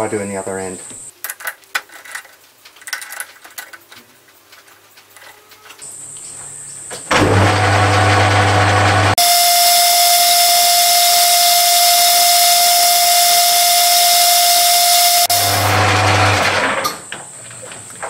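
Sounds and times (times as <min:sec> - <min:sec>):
metal clicks and knocks: 0:01.2 - 0:05.8
metal lathe whine: 0:07.2 - 0:17.0.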